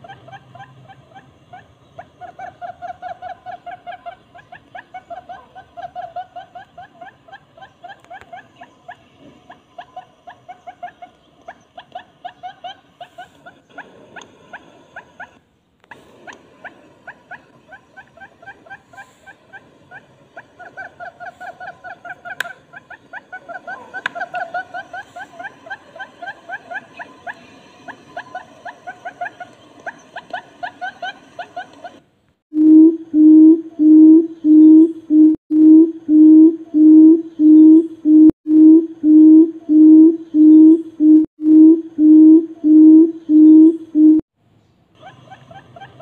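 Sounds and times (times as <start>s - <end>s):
bird low hooting calls: 32.6s - 44.2s.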